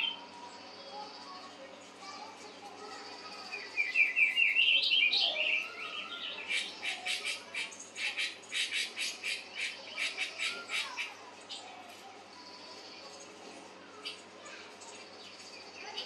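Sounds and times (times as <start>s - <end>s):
harsh chattering bird call: 3.1s - 11.7s.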